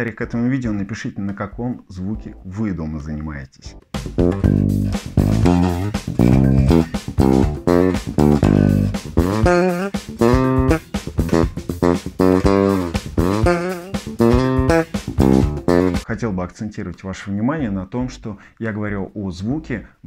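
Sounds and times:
electric bass guitar plucked: 4.0s - 16.0s.

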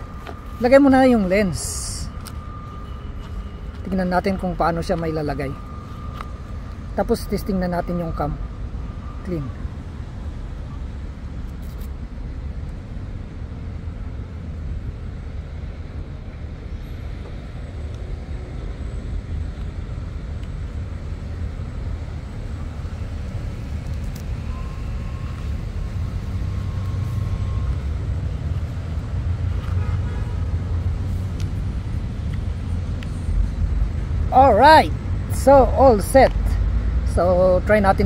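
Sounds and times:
steady high tone: 0.0s - 10.9s.

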